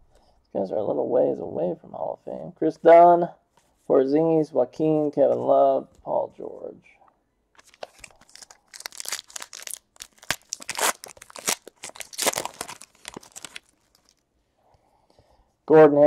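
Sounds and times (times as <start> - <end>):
wrapper tearing and crinkling: 7.6 - 14.2.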